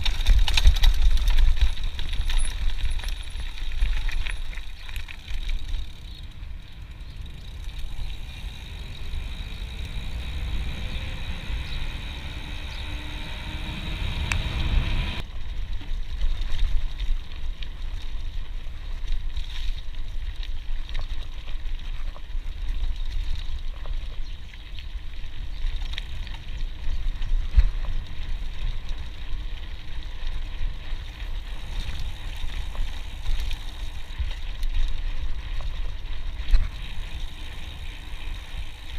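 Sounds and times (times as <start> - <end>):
bike rattling and clicking: 0.0 - 38.9
wind buffeting microphone: 5.2 - 15.2.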